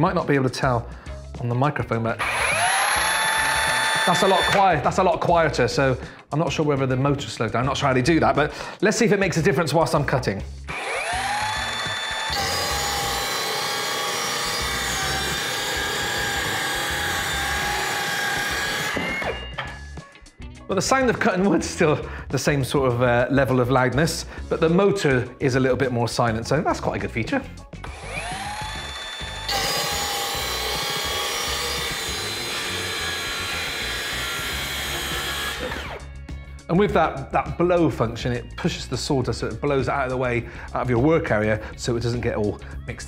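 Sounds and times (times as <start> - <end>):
saw blade rasping through wood: 10.7 - 19.5, 27.9 - 36.0.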